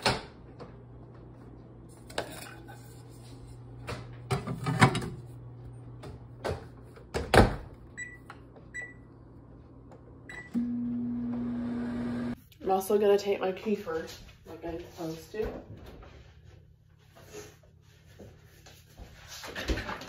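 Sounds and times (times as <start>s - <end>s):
microwave keypad beeps: 8.0s - 9.1s, 10.3s - 11.7s.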